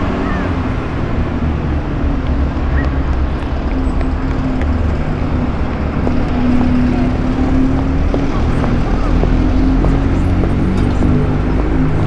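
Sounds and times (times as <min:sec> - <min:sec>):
low traffic rumble: 0:00.0 - 0:12.0.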